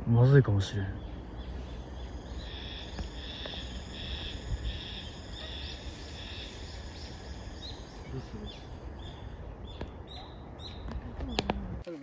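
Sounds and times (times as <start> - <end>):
low outdoor rumble: 0.0 - 12.0
high-pitched buzzing animal call: 2.0 - 8.4.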